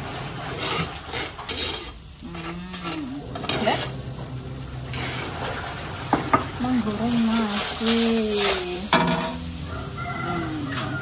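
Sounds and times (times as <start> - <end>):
metal spoon scraping stone mortar: 0.5 - 5.4.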